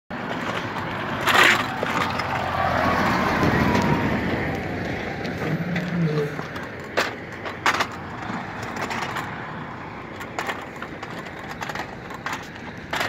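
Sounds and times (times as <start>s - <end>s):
truck driving past: 0.2s - 11.5s.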